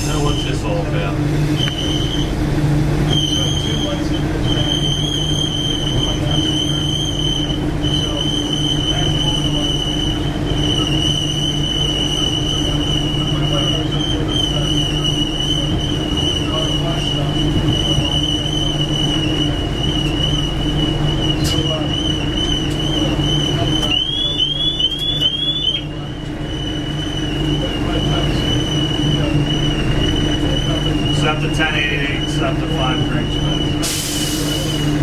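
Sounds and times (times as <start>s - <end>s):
electric railcar hum and rumble: 0.0s - 35.0s
high steady whine: 0.0s - 35.0s.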